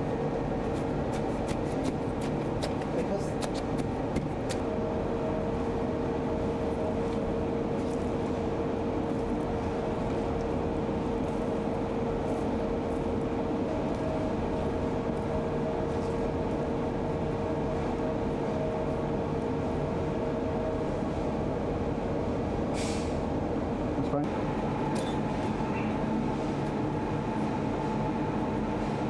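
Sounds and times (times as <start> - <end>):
mechanical hum: 0.0 - 29.0.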